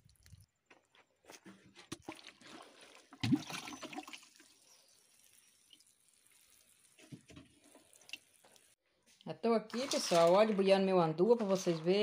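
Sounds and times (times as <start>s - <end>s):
hose spraying water on soil: 4.2s - 8.7s.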